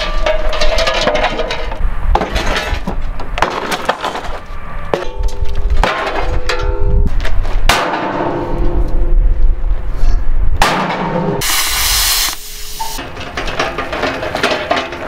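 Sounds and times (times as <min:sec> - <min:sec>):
metal clanks and knocks: 0:00.0 - 0:04.4, 0:12.8 - 0:15.0
loud hiss: 0:11.4 - 0:13.0
metal ringing: 0:12.6 - 0:15.0.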